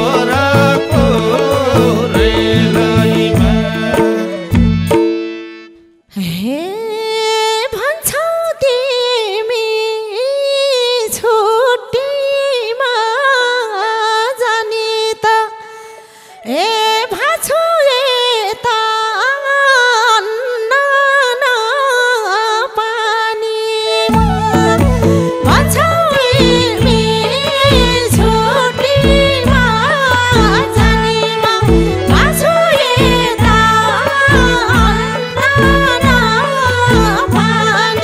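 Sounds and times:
drum: 0:00.0 - 0:05.1, 0:24.1 - 0:38.0
folk solo melody with pitch bends: 0:00.0 - 0:06.0, 0:24.0 - 0:38.0.

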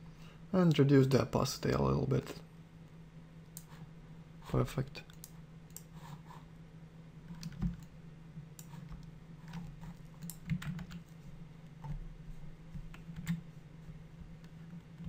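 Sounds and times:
steady low hum: 0:00.0 - 0:15.0
keyboard and mouse clicks: 0:05.0 - 0:05.9, 0:07.3 - 0:07.9, 0:08.6 - 0:11.2.

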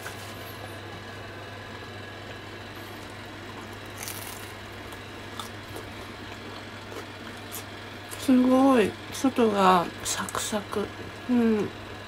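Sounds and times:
steady low hum: 0:00.0 - 0:12.0
chewing crunches: 0:02.8 - 0:08.2.

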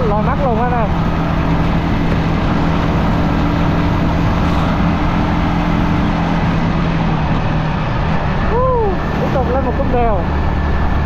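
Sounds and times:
motorcycle engine hum: 0:00.0 - 0:11.0
wind and road noise: 0:00.0 - 0:11.0.

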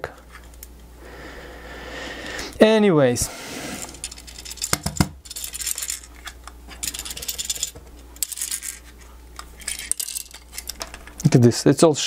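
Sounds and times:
plastic pieces rattling: 0:03.8 - 0:08.9, 0:09.6 - 0:11.4.

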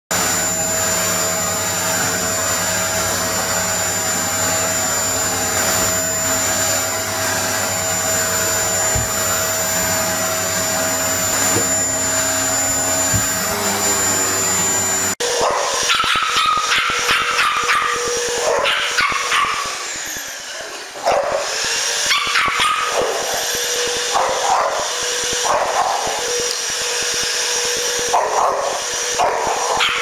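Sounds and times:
vacuum cleaner motor whining: 0:00.1 - 0:30.0
small dog barking: 0:15.3 - 0:19.7, 0:21.0 - 0:21.4, 0:22.1 - 0:23.2, 0:24.1 - 0:24.8, 0:25.4 - 0:26.1, 0:28.1 - 0:30.0.

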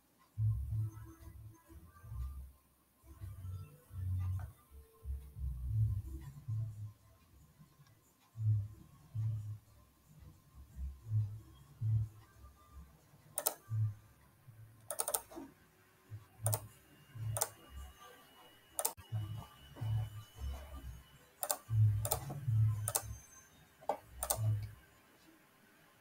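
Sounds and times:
computer mouse clicking: 0:13.3 - 0:13.8, 0:14.8 - 0:15.5, 0:16.4 - 0:17.6, 0:18.8 - 0:19.0, 0:21.4 - 0:23.2, 0:23.8 - 0:24.8.

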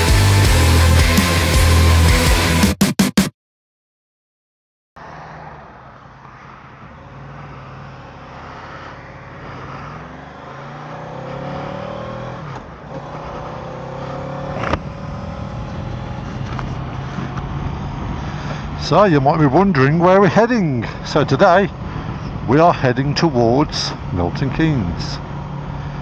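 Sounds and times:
wind and road noise: 0:05.0 - 0:26.0
motorcycle engine running: 0:13.1 - 0:18.9.

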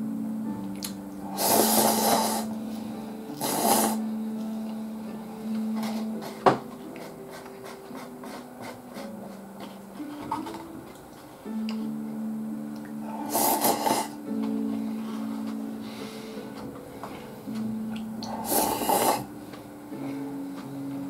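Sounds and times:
quiet background music: 0:00.0 - 0:21.0
person slurping noodles: 0:01.2 - 0:02.5, 0:03.4 - 0:04.0, 0:13.1 - 0:14.2, 0:18.2 - 0:19.3.

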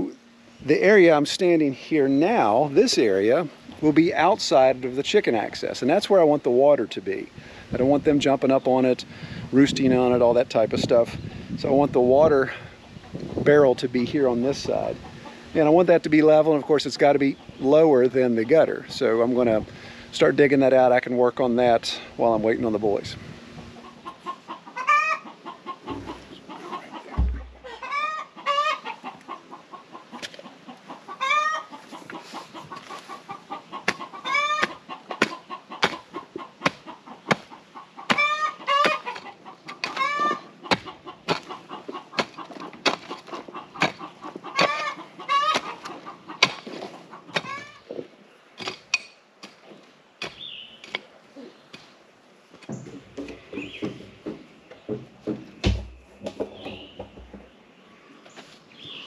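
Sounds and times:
chickens clucking: 0:00.0 - 0:59.0
shovel digging into dirt: 0:33.8 - 0:37.5, 0:38.1 - 0:41.6, 0:42.2 - 0:44.0, 0:44.6 - 0:47.6, 0:48.6 - 0:49.6.

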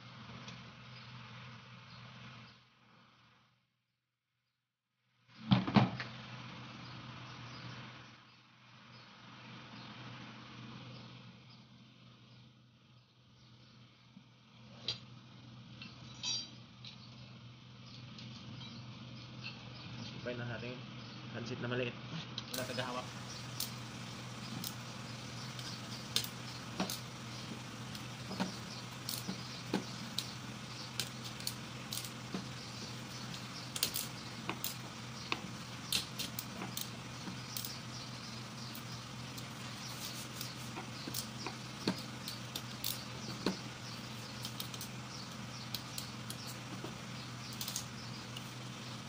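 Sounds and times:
metal bolts clicking and tapping: 0:22.6 - 0:48.5
steady low hum: 0:22.6 - 0:49.0.

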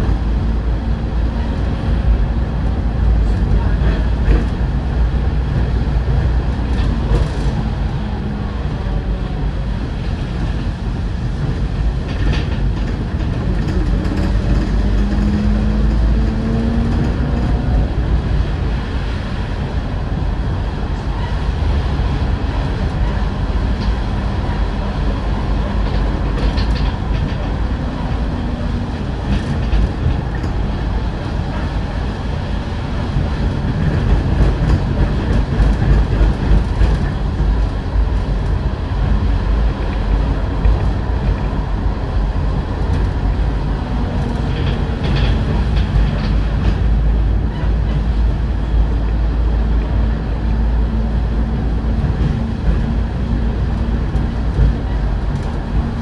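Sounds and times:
diesel engine drone: 0:00.0 - 0:56.0
road rumble: 0:00.0 - 0:56.0
interior rattles and clicks: 0:09.8 - 0:19.2, 0:21.8 - 0:50.8, 0:51.5 - 0:56.0.

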